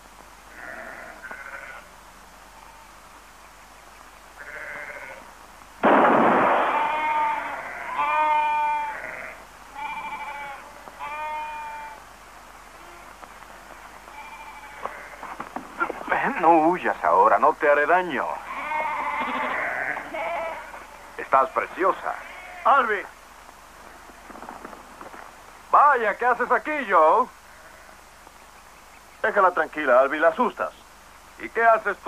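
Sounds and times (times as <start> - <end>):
lambs bleating: 0.5 - 1.9, 2.5 - 3.0, 4.4 - 5.3, 6.6 - 12.0, 12.8 - 13.2, 14.1 - 16.6, 18.3 - 21.2, 21.8 - 23.1, 27.5 - 28.0
loud bang: 5.8 - 7.0.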